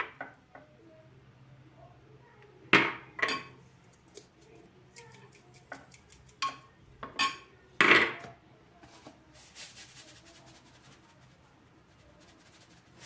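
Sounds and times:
seasoning patter from shaker: 3.9 - 6.6, 8.8 - 13.0.

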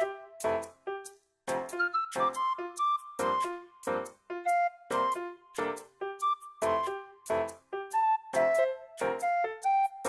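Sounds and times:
bouncy keyboard melody: 0.0 - 10.0.

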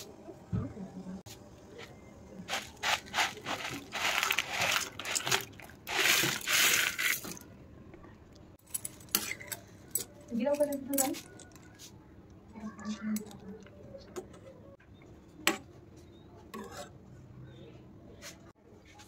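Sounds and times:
dry pasta pouring into water: 2.5 - 7.4.

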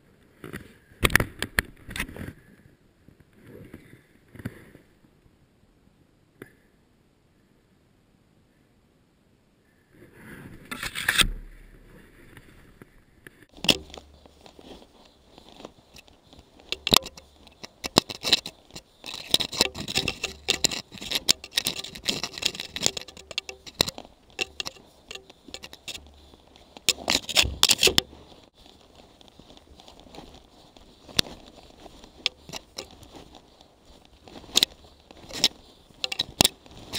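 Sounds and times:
digging in powder snow: 24.1 - 36.9.

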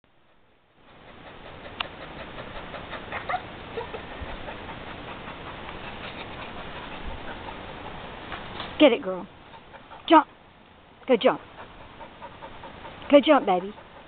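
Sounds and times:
outdoor hiss: 0.1 - 14.0
dog whining: 2.0 - 4.8.

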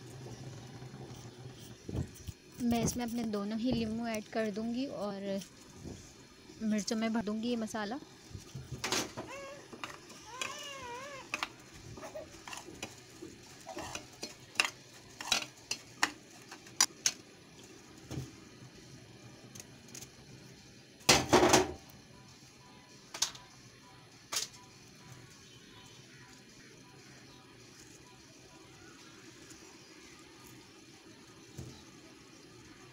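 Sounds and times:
metal spoon scraping a plate: 13.7 - 14.3.

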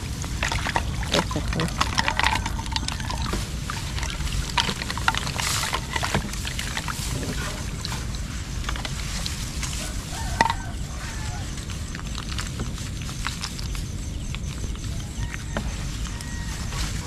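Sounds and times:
knocks and water splashes: 0.0 - 10.9
boat engine low rumble: 0.0 - 17.0.

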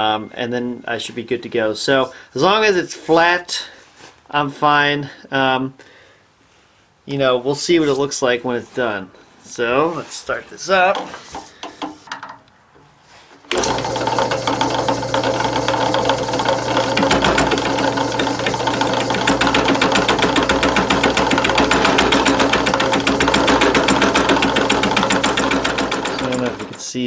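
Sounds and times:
drill press motor hum: 13.5 - 26.8
fly cutter rattling on metal: 13.5 - 27.0.

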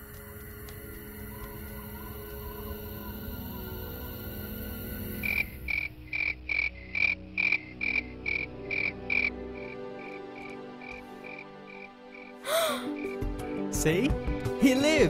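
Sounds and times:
low steady drone: 0.0 - 7.4
frog croaking: 5.0 - 13.6.

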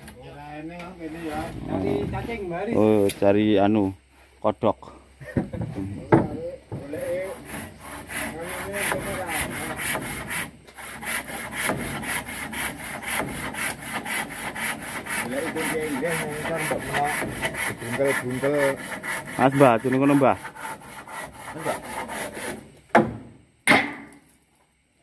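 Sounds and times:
handsaw cutting wood: 6.9 - 22.7.

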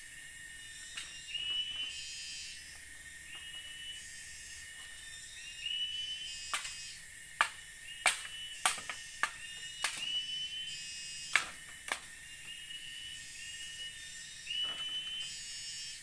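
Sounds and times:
high insect hiss: 0.0 - 16.0
bamboo poles knocking: 7.4 - 10.1, 11.4 - 12.0.

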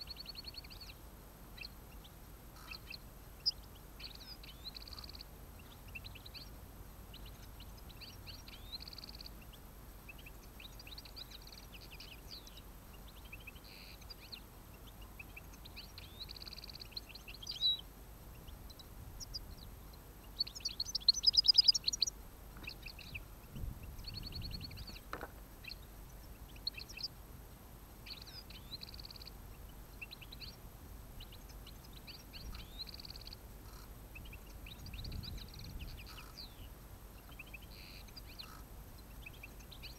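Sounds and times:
goldfinches twittering: 18.4 - 23.2, 31.3 - 39.9.

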